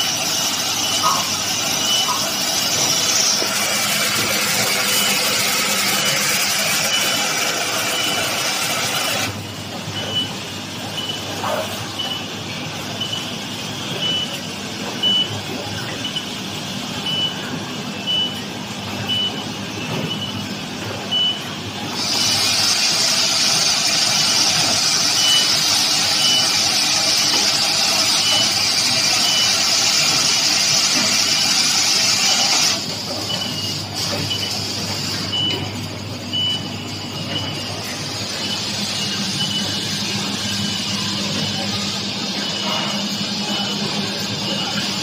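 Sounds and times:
soldering machine running: 0.0 - 9.4, 21.8 - 33.0.

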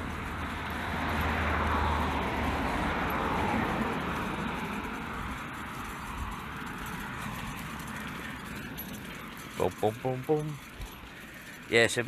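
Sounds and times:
car driving past: 0.0 - 9.5.

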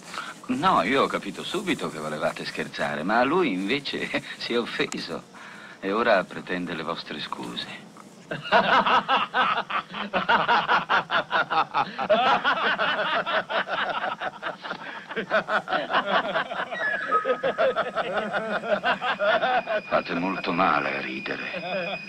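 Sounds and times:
men laughing: 8.2 - 20.3, 21.4 - 22.0.

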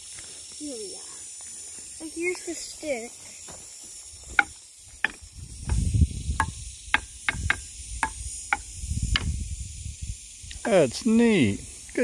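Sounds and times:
stick striking log xylophone: 6.4 - 9.3.

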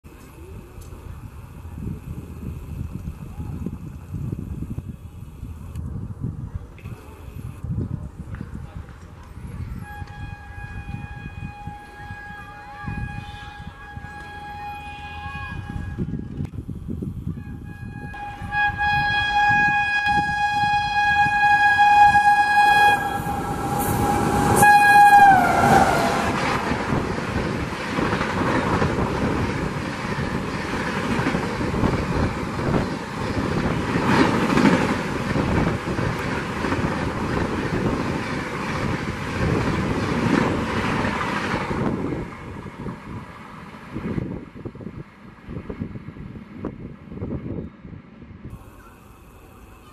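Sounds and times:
train horn: 9.6 - 16.4, 17.3 - 27.1
train coaches rushing past: 17.4 - 44.9
rail clatter: 22.0 - 43.8.

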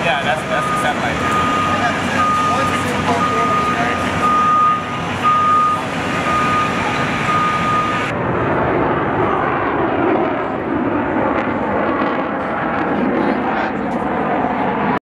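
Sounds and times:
engine din: 0.0 - 9.7
aircraft engine noise: 0.0 - 15.0
backing alarm beeps: 0.2 - 8.1.

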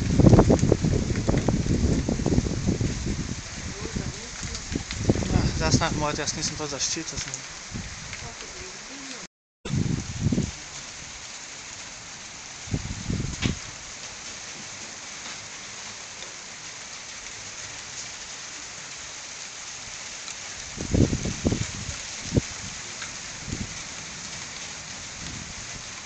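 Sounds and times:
low thunder rumbles: 0.0 - 6.8, 7.4 - 9.0, 9.7 - 11.2, 12.7 - 13.8, 20.7 - 25.9
steady rain hissing: 0.0 - 26.0.

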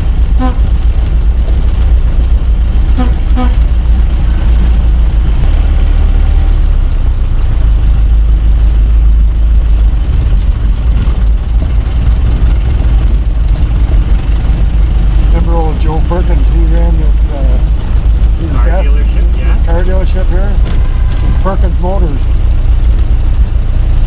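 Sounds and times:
car engine rumbling: 0.0 - 24.0
car horn toots: 0.3 - 0.8, 2.9 - 3.7, 20.6 - 21.8.

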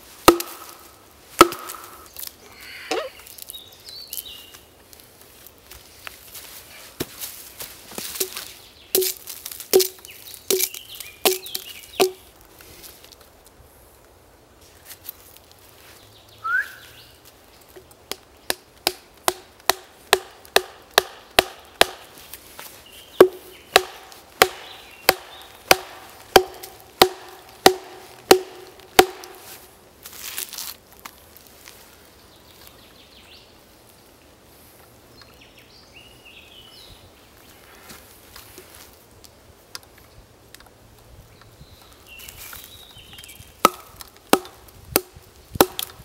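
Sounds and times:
rustle: 0.0 - 46.0
wooden knocks splitting log: 0.2 - 0.7, 1.4 - 1.8, 9.0 - 12.2, 18.5 - 22.1, 23.2 - 29.4, 43.6 - 46.0.

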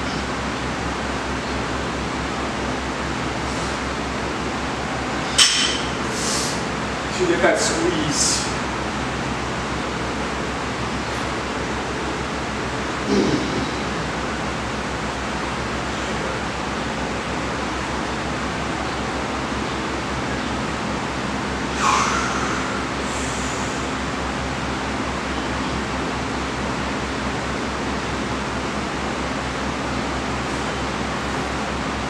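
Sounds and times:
low hum: 8.4 - 25.8
steady rushing air noise: 20.7 - 25.2.

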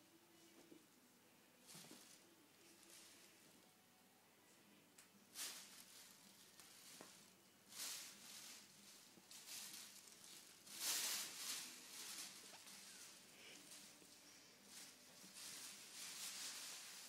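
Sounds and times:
plastic bag crinkling: 5.3 - 17.0.

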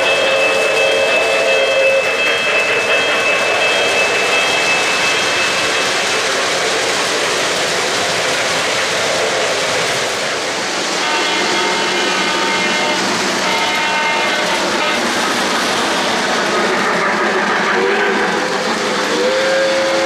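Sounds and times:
model train wheels clattering: 0.0 - 10.2
train horn blasts: 11.0 - 15.1, 16.5 - 18.4.

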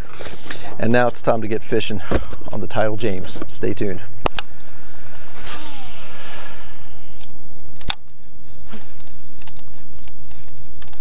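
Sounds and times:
reel whirring: 4.6 - 7.9
fishing line swish: 5.0 - 7.4
sharp click: 7.2 - 8.2.

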